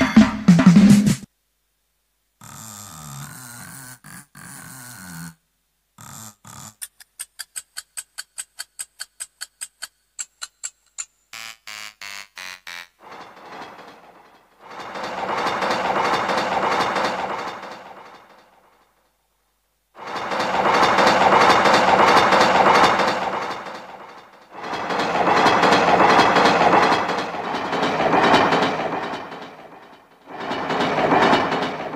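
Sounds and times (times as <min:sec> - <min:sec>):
rapid even ticking: 0:06.4 - 0:18.4, 0:20.0 - 0:31.9.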